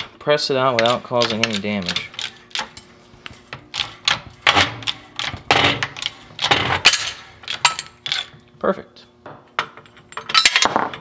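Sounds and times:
sharp metal clicks and clanks: 0:00.7 - 0:02.9, 0:03.6 - 0:08.4.

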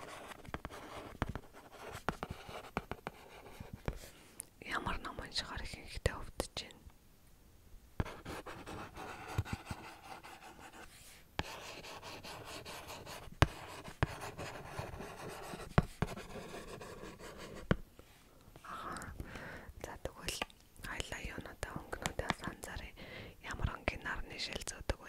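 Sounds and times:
pen scratching on paper: 0:00.0 - 0:04.1, 0:08.0 - 0:17.8.

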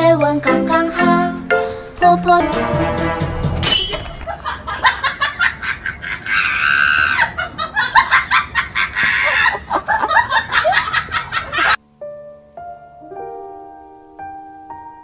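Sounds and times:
person laughing high-pitched: 0:04.3 - 0:11.8.

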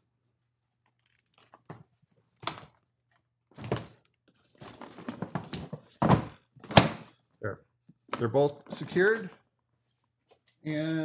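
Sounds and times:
rustling and plastic clatter: 0:00.8 - 0:06.8.

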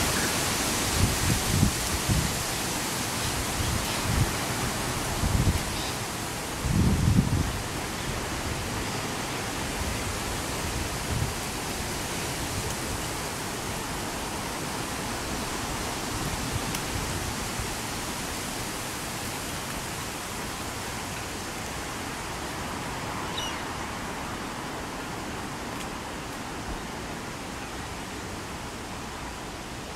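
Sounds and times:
steady wind hiss: 0:00.0 - 0:29.9
wind buffeting microphone: 0:00.7 - 0:02.6, 0:06.6 - 0:08.8.

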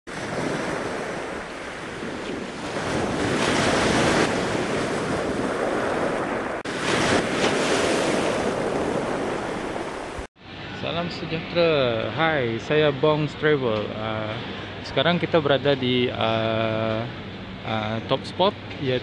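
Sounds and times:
ocean waves breaking: 0:00.1 - 0:10.3.

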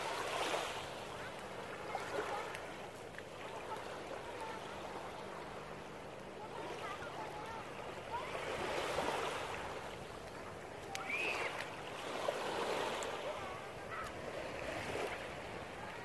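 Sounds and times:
faint distant voices: 0:00.0 - 0:16.0
small waves washing onto beach: 0:00.0 - 0:16.0.

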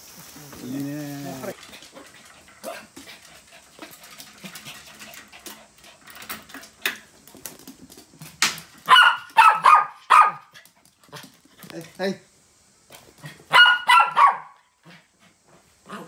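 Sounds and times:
small dogs yapping: 0:08.7 - 0:11.2, 0:13.2 - 0:15.0.

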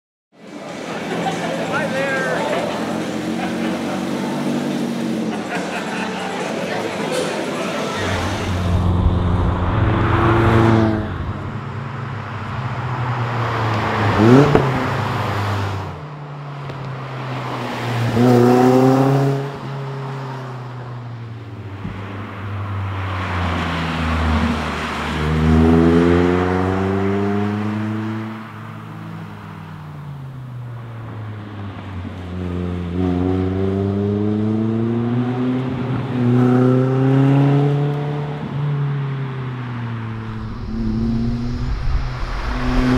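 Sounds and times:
sports car engine accelerating: 0:07.6 - 0:15.5, 0:39.6 - 0:42.9.

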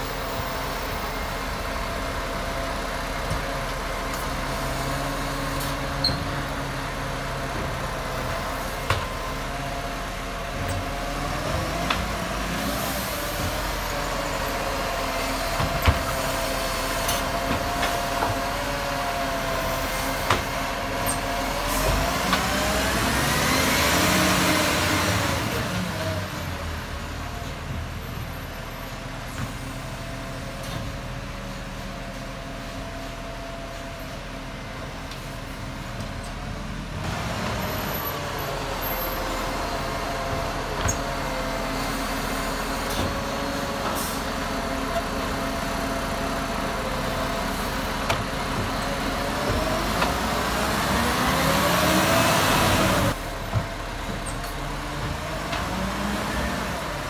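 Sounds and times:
diesel truck engine revving: 0:00.0 - 0:27.8, 0:36.4 - 0:57.0.

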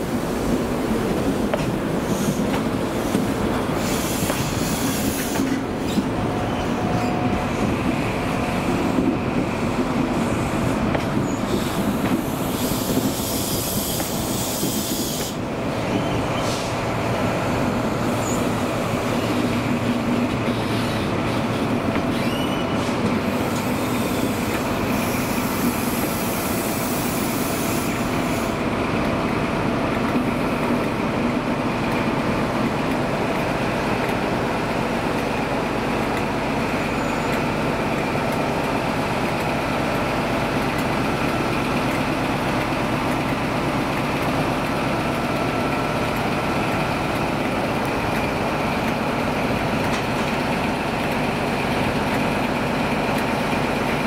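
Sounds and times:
train wheels rumbling on rails: 0:00.0 - 0:54.0
high wheel squeals: 0:20.5 - 0:22.9, 0:36.8 - 0:37.4.

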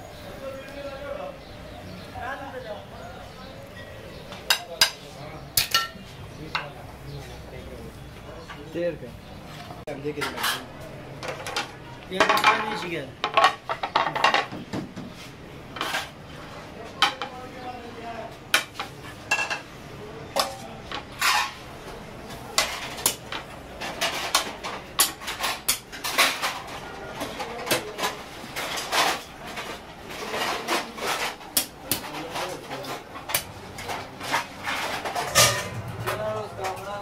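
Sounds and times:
metal spoon clanking on pan and plates: 0:03.8 - 0:06.8, 0:10.1 - 0:14.5, 0:17.0 - 0:17.5, 0:18.5 - 0:19.7, 0:20.3 - 0:21.7, 0:22.3 - 0:37.0.

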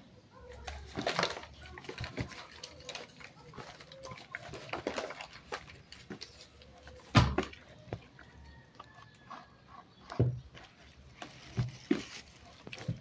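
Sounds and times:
hands squelching bread dough: 0:00.4 - 0:13.0
dough thumping: 0:07.1 - 0:08.0.

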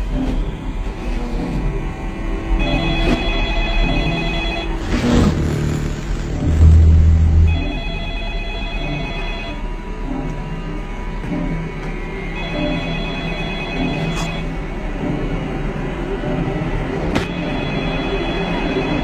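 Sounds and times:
deep hum: 0:00.0 - 0:12.2
telephone ringing: 0:02.6 - 0:04.8, 0:07.5 - 0:09.6, 0:12.4 - 0:14.4, 0:17.3 - 0:19.0.

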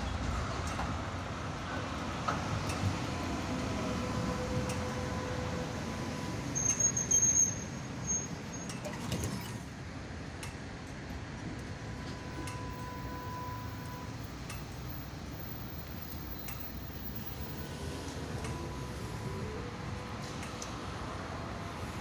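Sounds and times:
tram rumbling past on rails: 0:00.0 - 0:22.0
high metallic squeal: 0:02.6 - 0:09.6, 0:11.8 - 0:20.6.

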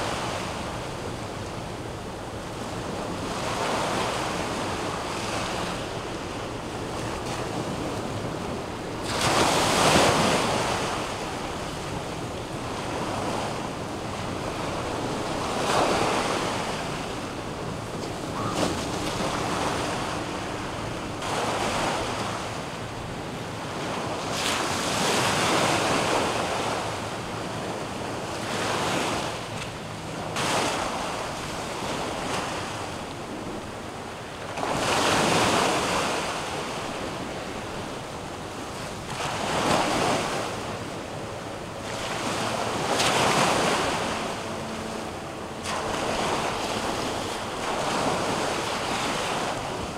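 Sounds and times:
surf washing in: 0:00.0 - 0:49.9.

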